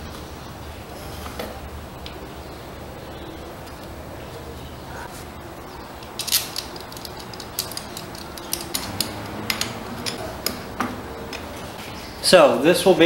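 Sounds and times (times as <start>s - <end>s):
metal tools clinking: 5.9s - 10.4s.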